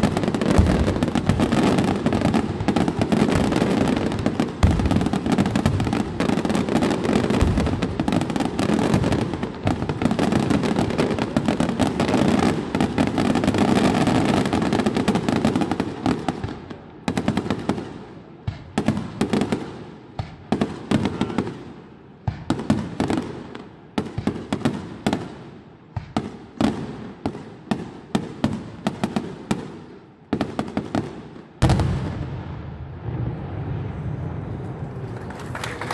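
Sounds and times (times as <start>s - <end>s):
fireworks bangs: 0.0s - 35.9s
fireworks bursting and crackling: 0.0s - 35.9s.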